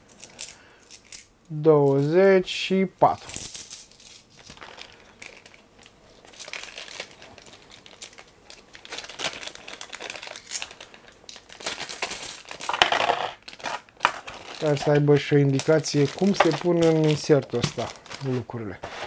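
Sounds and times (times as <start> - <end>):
metal coins clinking: 0.1 - 1.3, 3.2 - 4.7, 6.2 - 7.0, 11.3 - 18.0.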